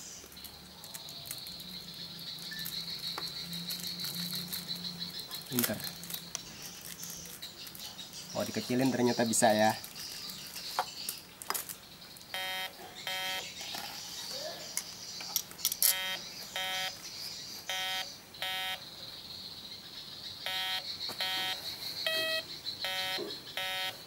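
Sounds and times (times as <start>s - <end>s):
metal detector beeping: 12.4s - 13.4s, 15.8s - 17.0s, 17.7s - 18.8s, 20.5s - 24.0s.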